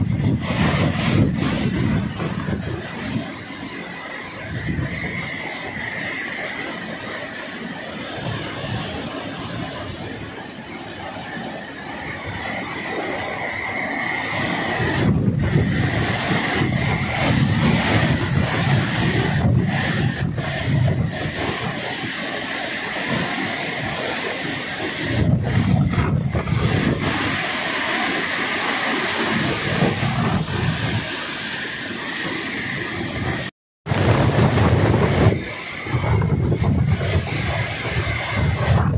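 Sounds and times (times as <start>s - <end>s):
strong wind gusting: 0.0s - 38.9s.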